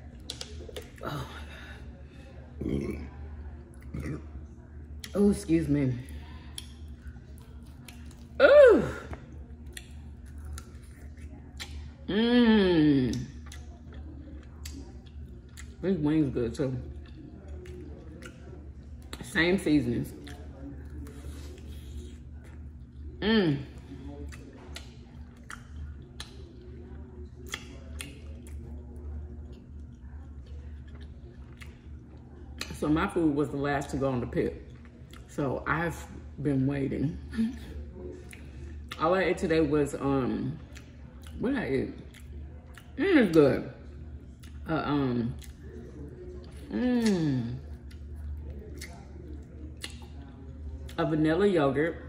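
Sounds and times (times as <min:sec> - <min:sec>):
steady low hum: 0:00.0 - 0:52.0
mouth clicks while eating: 0:00.2 - 0:01.0, 0:09.6 - 0:11.9, 0:17.0 - 0:19.2, 0:24.3 - 0:26.6, 0:27.4 - 0:28.8, 0:46.4 - 0:50.2
chewing chicken wings: 0:06.2 - 0:08.4, 0:09.1 - 0:12.0, 0:13.1 - 0:15.8, 0:16.8 - 0:19.3, 0:20.0 - 0:23.2, 0:23.8 - 0:32.8, 0:34.6 - 0:35.4, 0:37.6 - 0:39.0, 0:40.6 - 0:41.4, 0:42.0 - 0:44.6, 0:45.2 - 0:51.0
wet mouth clicks and lip smacks: 0:24.3 - 0:26.5, 0:27.4 - 0:28.6, 0:47.8 - 0:50.1.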